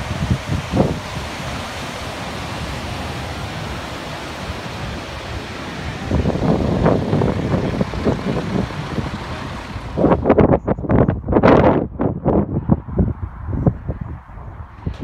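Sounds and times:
river water rushing over weir: 0.0s - 10.3s
wind buffeting microphone: 0.0s - 15.0s.

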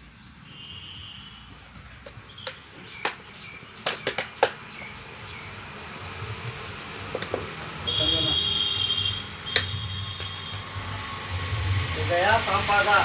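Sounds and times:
plastic bottle knocking on ground: 3.8s - 4.6s, 7.1s - 7.6s.

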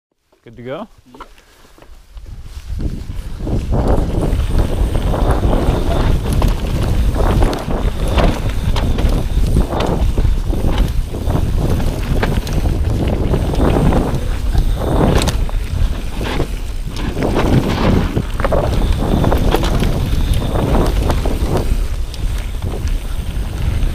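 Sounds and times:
bike clicks and rattles: 0.2s - 23.9s
tyres scrubbing over dirt: 1.1s - 23.9s
wind buffeting microphone: 2.0s - 23.9s.

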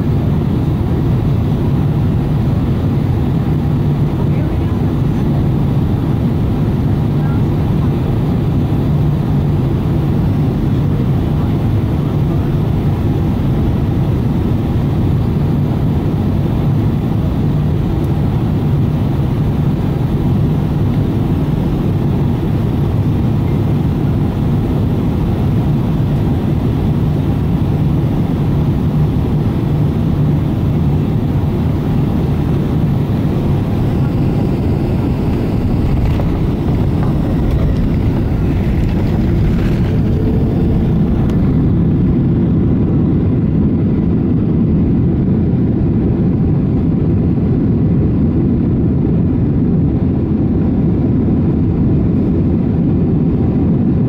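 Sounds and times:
constant low hum: 0.0s - 54.0s
jet engine drone: 0.0s - 54.0s
rushing air: 30.8s - 43.3s.

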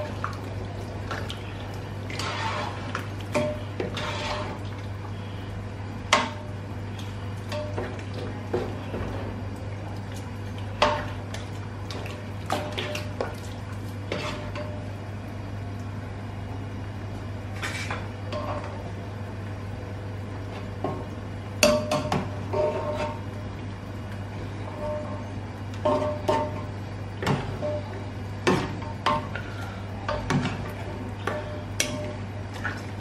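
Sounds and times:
steady low hum: 0.0s - 33.0s
spoon scraping metal pot: 3.8s - 4.6s.

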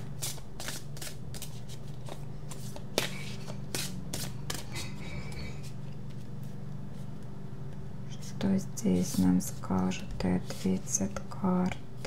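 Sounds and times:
cards being shuffled: 0.0s - 7.2s
steady low hum: 0.0s - 12.0s.

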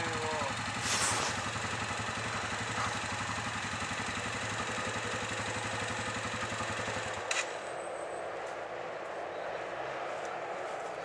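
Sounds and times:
quad bike engine idling: 0.0s - 7.7s.

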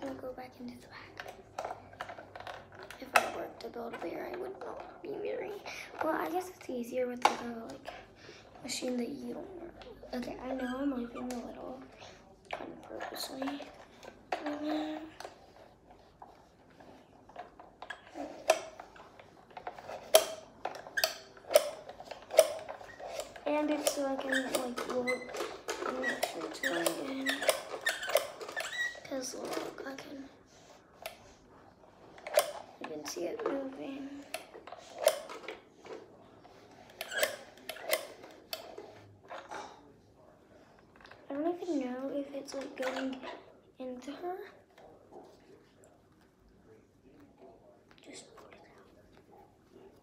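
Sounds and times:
plastic toy machine clicking: 19.6s - 29.8s, 32.2s - 33.6s, 34.3s - 35.6s, 36.9s - 38.8s.

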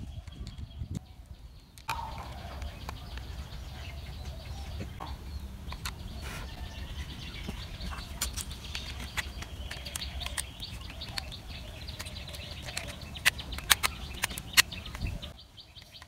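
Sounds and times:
plastic parts clicking together: 8.0s - 15.2s.

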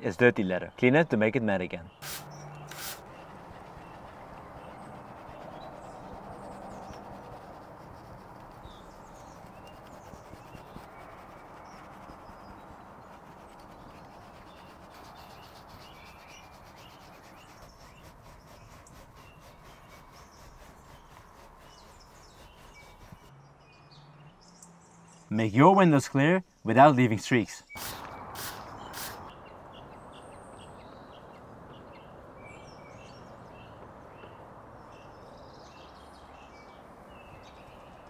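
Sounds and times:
brush scrubbing leather: 2.0s - 23.3s.

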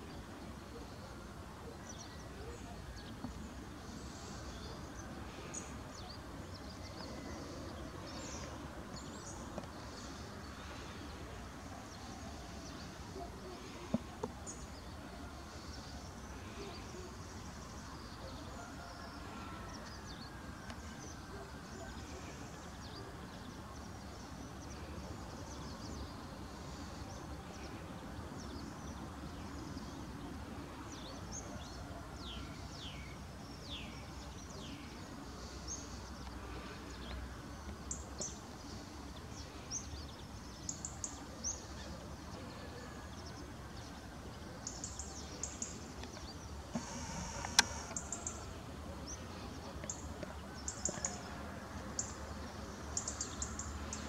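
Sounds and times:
small birds chirping: 32.7s - 54.0s
sharp clicks: 46.0s - 48.4s.

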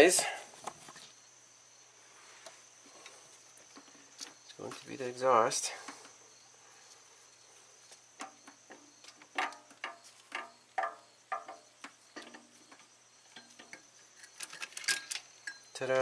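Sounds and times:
metallic clinks and knocks: 8.2s - 16.0s.

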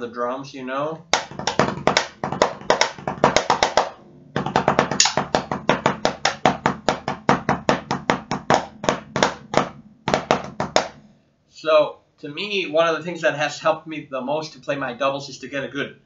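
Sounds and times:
drumsticks on practice pad: 4.9s - 5.4s.

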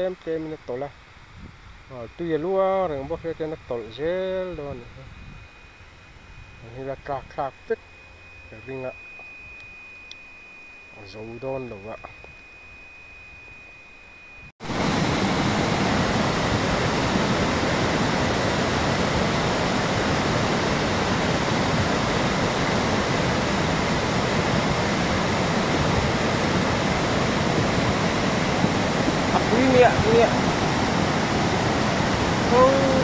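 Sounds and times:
faint steady high tone: 1.9s - 14.6s, 20.3s - 33.0s
river rushing: 14.6s - 33.0s.

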